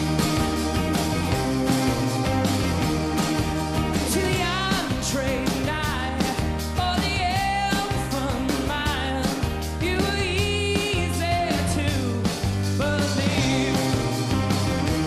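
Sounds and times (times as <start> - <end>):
rock band playing: 0.0 - 15.0
man singing: 4.0 - 14.4.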